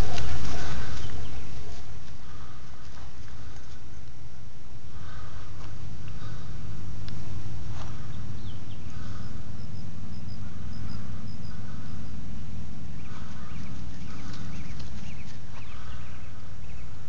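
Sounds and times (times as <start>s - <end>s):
birds chirping: 0.0s - 17.0s
steady low rumble: 0.0s - 17.0s.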